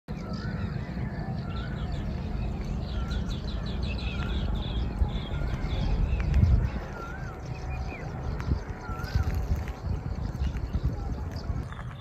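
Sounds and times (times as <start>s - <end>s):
bird whistling: 0.1s - 9.7s
high bird chirps: 0.1s - 12.0s
wind rumble on microphone: 0.1s - 12.0s.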